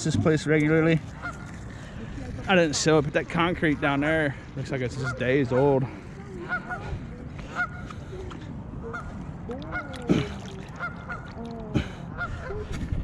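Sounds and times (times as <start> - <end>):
geese honking: 1.1 - 1.7, 4.6 - 10.0, 10.6 - 12.7.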